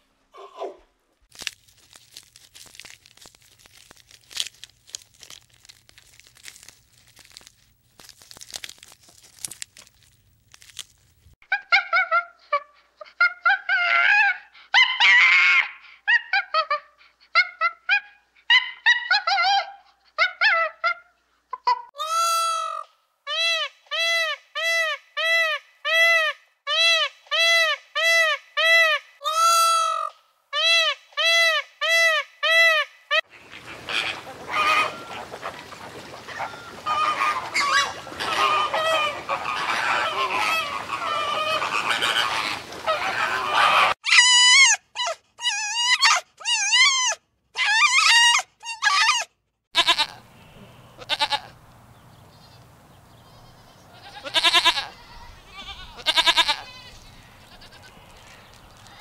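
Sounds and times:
goose honking: 33.4 - 44.0.

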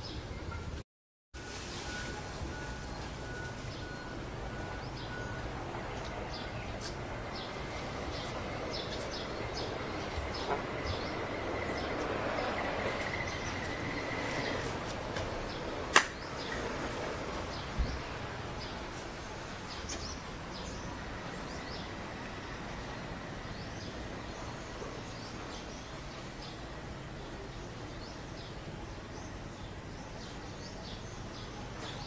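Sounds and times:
steady background hiss: 1.4 - 32.0
sharp click: 15.9 - 16.2.

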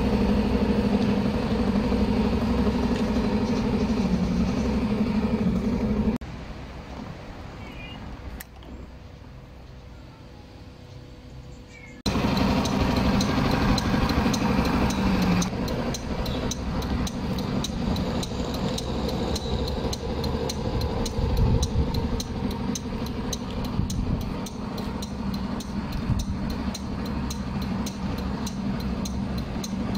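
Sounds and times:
scooter engine idling: 0.0 - 6.2, 12.1 - 29.9
light ticks: 12.6 - 29.9.

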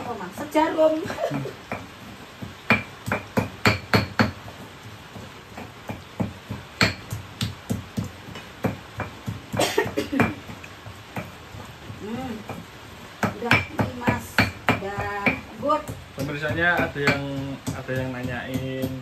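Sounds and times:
pestle pounding in stone mortar: 0.0 - 19.0.

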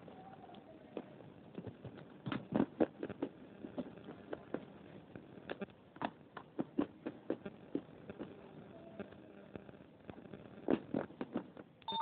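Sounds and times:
biscuits crunching while chewed: 1.0 - 8.6, 10.0 - 11.8.

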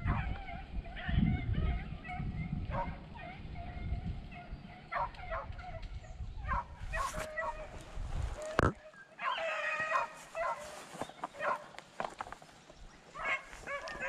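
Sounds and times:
dogs baying: 0.0 - 5.8, 9.2 - 11.7, 13.2 - 14.0.

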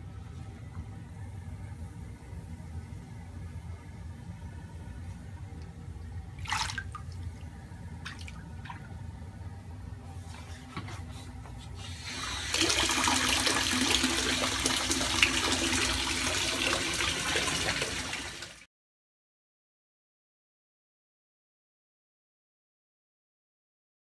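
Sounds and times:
bath bomb fizzing: 11.9 - 18.5.

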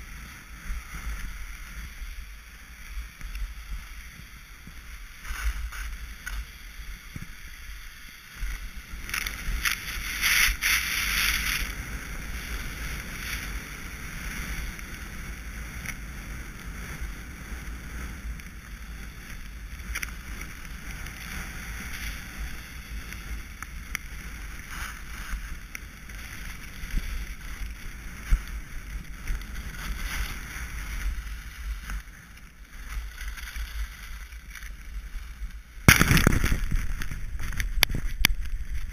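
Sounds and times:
skis scraping over snow: 0.0 - 38.9
wind buffeting microphone: 35.5 - 38.9.

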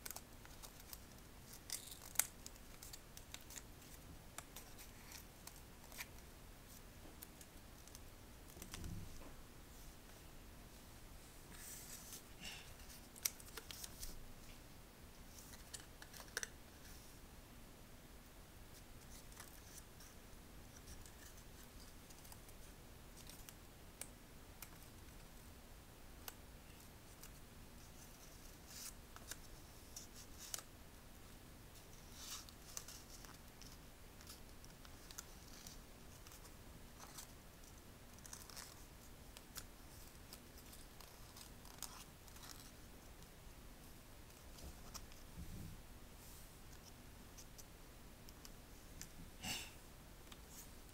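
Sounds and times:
paper crinkling and rustling: 0.0 - 9.2.

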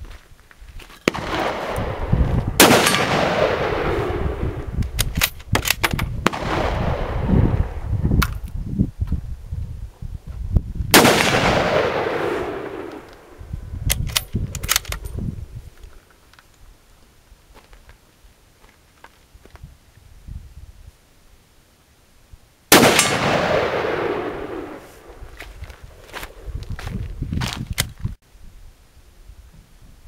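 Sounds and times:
rifle shots with echo: 1.1 - 4.6, 5.6 - 7.3, 10.9 - 13.4, 22.7 - 25.2
rifle bolt clicks: 4.8 - 6.1, 13.9 - 15.2.

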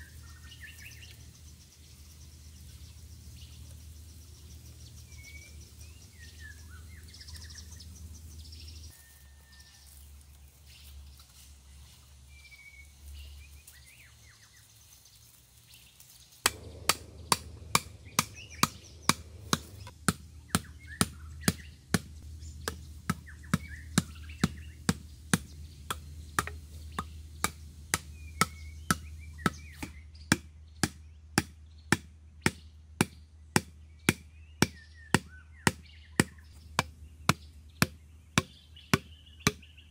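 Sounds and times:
birds chirping: 0.0 - 39.9
sharp knocks: 16.5 - 39.6.

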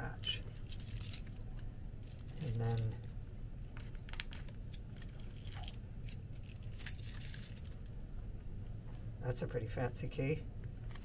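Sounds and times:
keys jangling: 0.5 - 1.4, 2.0 - 3.1, 4.9 - 7.9.

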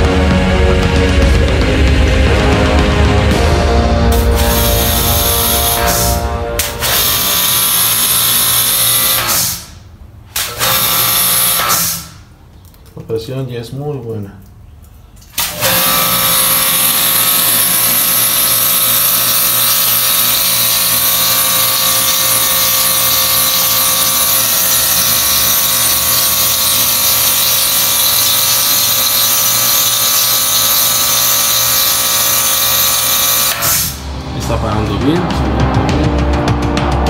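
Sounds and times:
pressure washer motor whine: 0.0 - 9.6, 10.6 - 12.0, 15.4 - 34.4.

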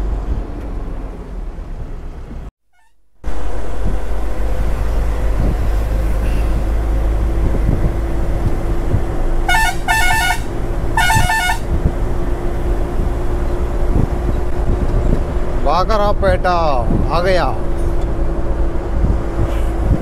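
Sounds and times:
truck engine running under load: 3.2 - 20.0
vehicle horn honking: 9.4 - 11.8.

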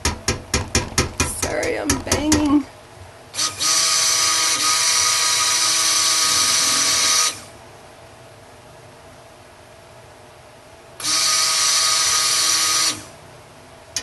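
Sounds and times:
stick blender motor whine: 3.4 - 7.5, 11.0 - 13.1.

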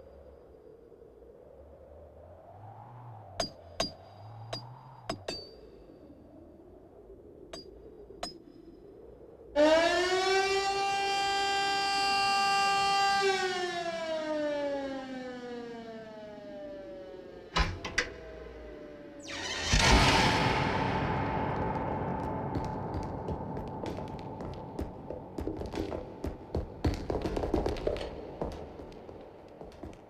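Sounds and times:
rotary air-raid siren wailing: 9.5 - 26.9.

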